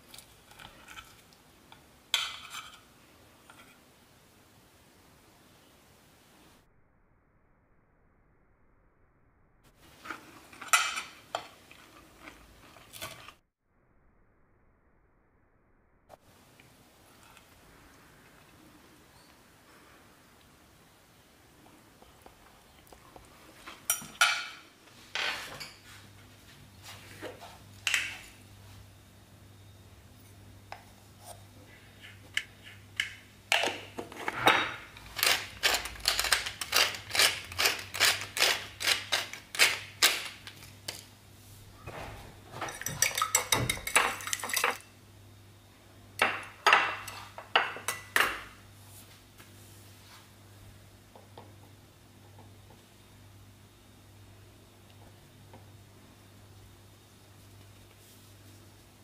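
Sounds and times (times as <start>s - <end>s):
fork beating egg in glass dish: 35.0s - 40.7s
pepper grinder crackling clicks: 35.0s - 41.0s.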